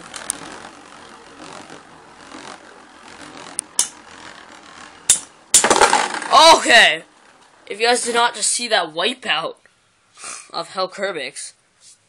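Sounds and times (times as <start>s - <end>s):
spinning tops whirring: 0.0s - 6.9s
spinning tops clacking together: 5.1s - 6.6s.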